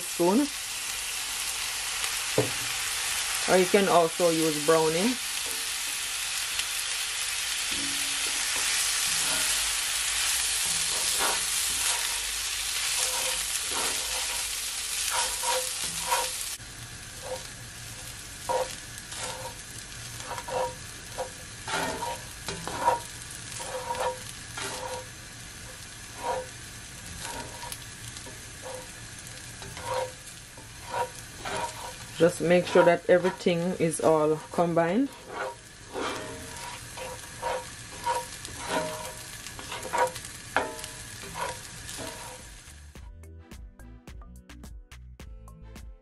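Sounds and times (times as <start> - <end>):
food sizzling in hot oil: 0.0 - 43.0
spoon scraping and tapping pan: 12.9 - 14.5, 15.1 - 16.4, 17.2 - 17.5, 18.5 - 19.6, 20.2 - 25.1, 26.2 - 26.6, 27.2 - 28.9, 29.6 - 42.5.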